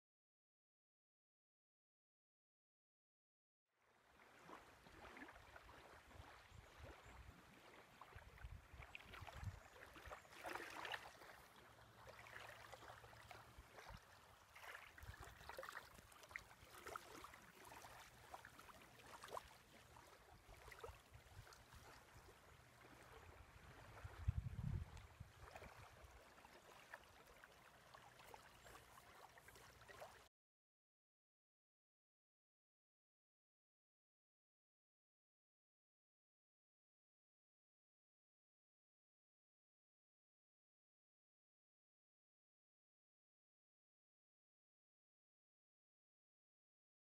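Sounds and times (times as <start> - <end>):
small waves lapping on sand: 3.8 - 30.3
wind rumble on microphone: 8.2 - 9.7, 23.2 - 26.1.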